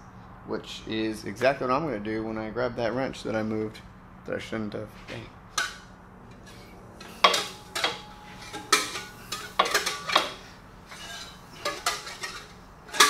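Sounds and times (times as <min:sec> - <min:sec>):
wrench clanking against engine: 0:07.0 - 0:13.0.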